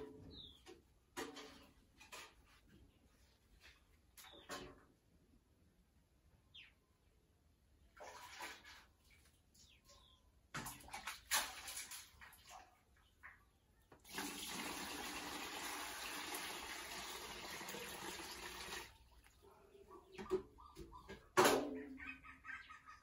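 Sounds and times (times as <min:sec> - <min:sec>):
water pouring into plastic bucket: 0:14.0 - 0:19.0.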